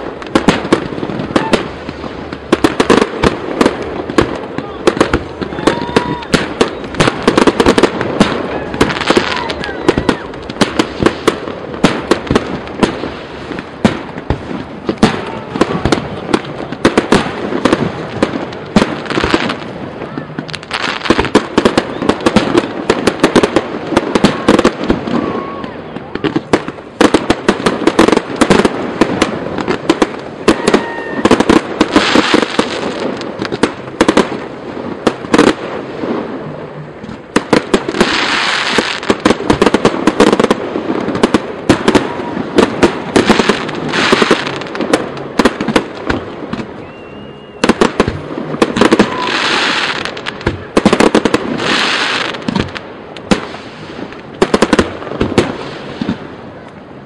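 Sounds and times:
fireworks crackling hiss: 0:00.0 - 0:57.0.

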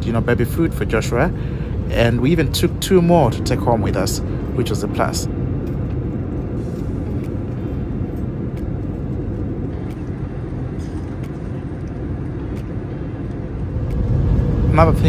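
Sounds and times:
jet engines and rushing air: 0:00.0 - 0:15.0.

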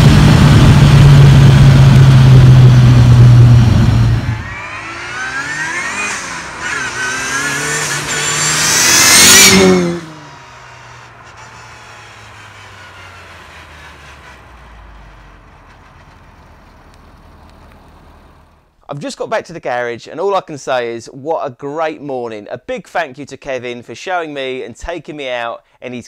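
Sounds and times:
car engine accelerating hard: 0:00.0 - 0:18.7.

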